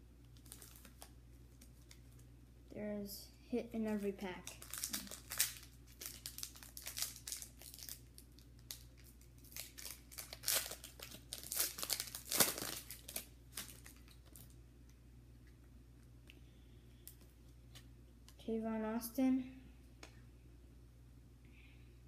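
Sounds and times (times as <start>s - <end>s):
foil wrapper crinkling: 0.3s - 2.2s, 3.9s - 14.6s.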